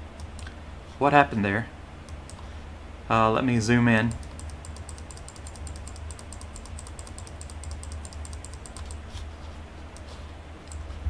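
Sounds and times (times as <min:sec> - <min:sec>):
steady low hum: 0:00.0 - 0:11.0
computer mouse clicking: 0:04.1 - 0:09.0, 0:10.0 - 0:10.9.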